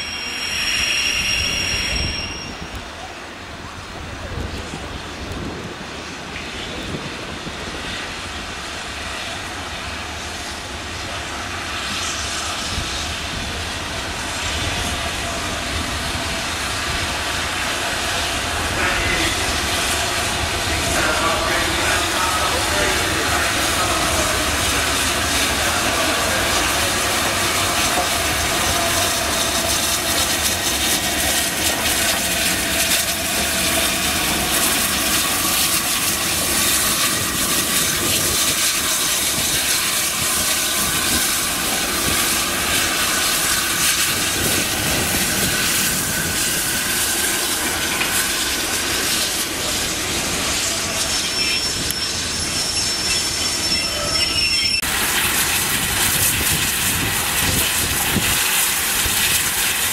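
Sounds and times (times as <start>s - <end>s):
faint wheel squeal: 0.0s - 3.1s, 49.7s - 55.5s
hissing steam: 0.0s - 59.9s
train running gear and wheels: 0.0s - 59.9s.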